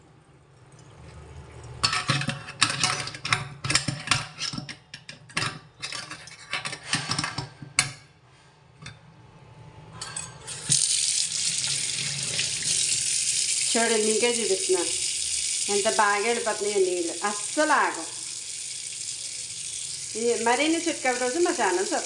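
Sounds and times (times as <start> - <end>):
tap water running into sink: 10.5 - 22.0
water draining: 10.5 - 22.0.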